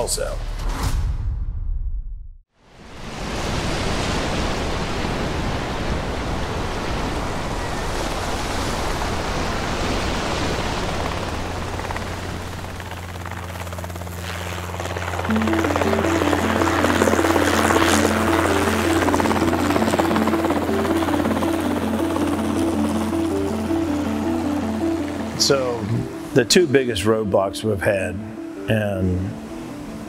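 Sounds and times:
heavy surf: 0:02.7 - 0:12.6, 0:15.3 - 0:30.0
rushing wind: 0:02.7 - 0:15.2
helicopter rotor: 0:10.2 - 0:25.8
music: 0:14.7 - 0:30.0.

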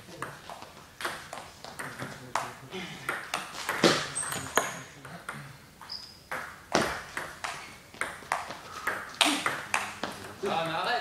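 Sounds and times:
table tennis balls clicking: 0:00.1 - 0:05.5, 0:06.3 - 0:10.7
high squeaks: 0:05.8 - 0:06.4.

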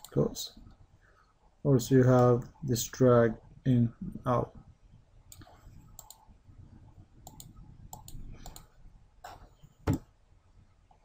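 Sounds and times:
computer mouse clicking: 0:00.0 - 0:00.2, 0:05.3 - 0:06.3, 0:07.2 - 0:10.0.

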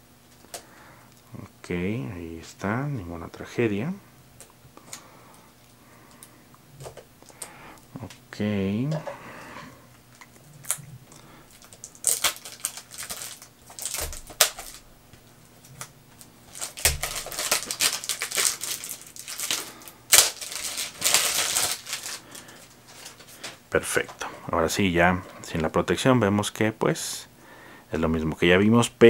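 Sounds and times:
plastic wrap crinkling: 0:10.1 - 0:24.1.

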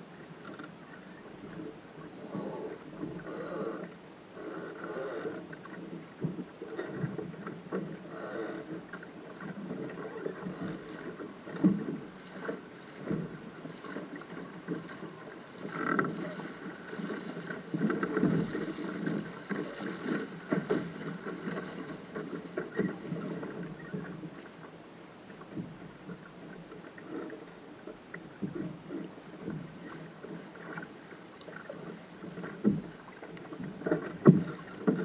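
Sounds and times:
water splashing against boat hull: 0:00.0 - 0:35.0
knocks through boat hull: 0:32.3 - 0:35.0.

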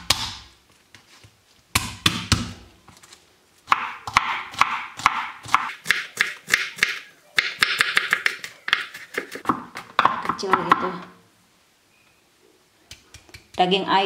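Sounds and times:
knife chopping on wooden board: 0:03.7 - 0:10.8.

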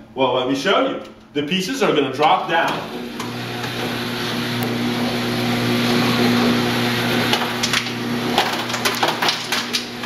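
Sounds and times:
vending machine motor hum: 0:02.2 - 0:10.0.

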